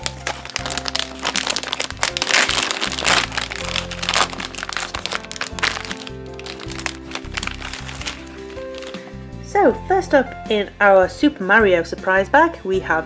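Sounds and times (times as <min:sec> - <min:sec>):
plastic bag tearing: 0:00.0 - 0:09.0
foil packaging crinkling: 0:00.0 - 0:09.1
background music: 0:00.0 - 0:13.0.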